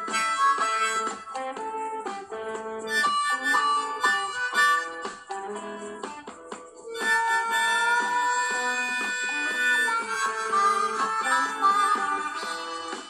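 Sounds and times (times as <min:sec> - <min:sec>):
blues harmonica riffs: 0:00.0 - 0:13.0.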